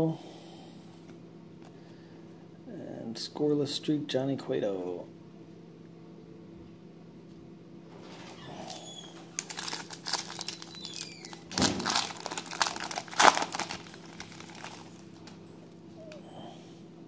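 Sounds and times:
foil wrapper crinkling: 0:08.7 - 0:15.5.

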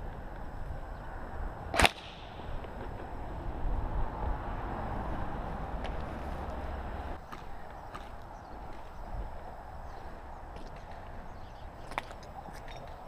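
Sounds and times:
sharp crack: 0:01.7 - 0:03.2
footsteps on paving and grass: 0:05.8 - 0:13.0.

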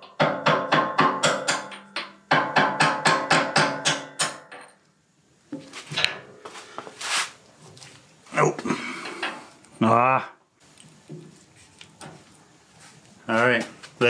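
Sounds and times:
faint handling noises: 0:10.6 - 0:14.0.

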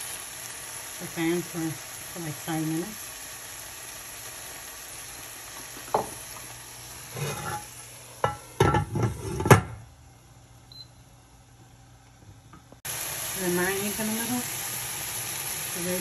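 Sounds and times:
sauce sizzling in a frying pan: 0:00.0 - 0:08.7, 0:12.8 - 0:16.0
spatula scraping a pan: 0:07.0 - 0:07.7, 0:08.3 - 0:09.6.

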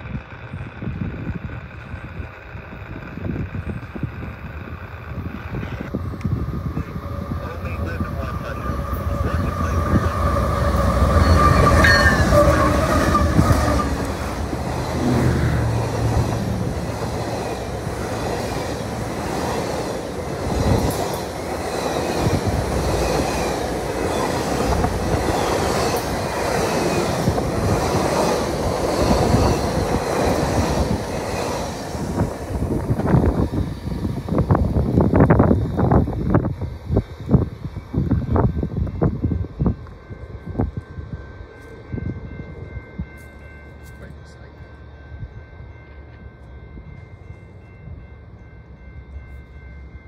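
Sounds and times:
diesel locomotive engine rumble: 0:00.0 - 0:50.0
steady high tone: 0:05.8 - 0:50.0
train wheels clattering on rails: 0:08.8 - 0:36.5.

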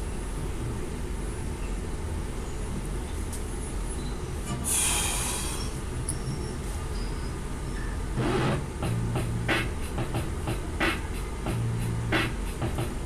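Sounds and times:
steady low hum: 0:08.0 - 0:13.0
rap beat: 0:08.2 - 0:13.0.

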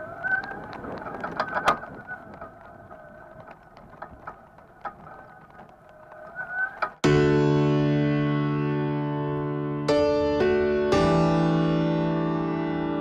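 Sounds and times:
mobility scooter electric whine: 0:00.0 - 0:07.0
clicks and rattles: 0:00.3 - 0:07.0.

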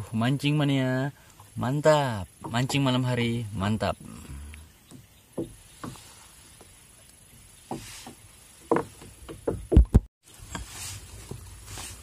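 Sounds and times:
handling knocks and thumps: 0:04.8 - 0:06.8, 0:07.4 - 0:12.0.

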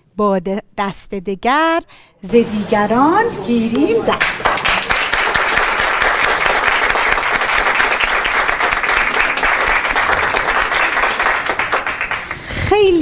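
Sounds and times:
audience applauding: 0:03.8 - 0:12.6.

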